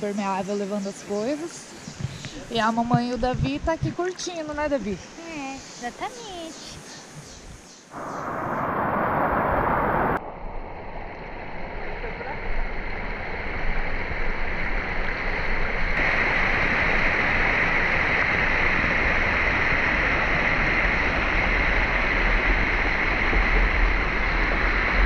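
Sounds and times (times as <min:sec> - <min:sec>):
water rushing over rocks: 0:12.5 - 0:25.0.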